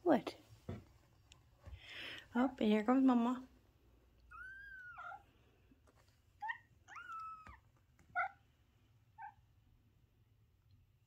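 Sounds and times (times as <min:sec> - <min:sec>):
kittens mewing: 0:04.3 - 0:05.3.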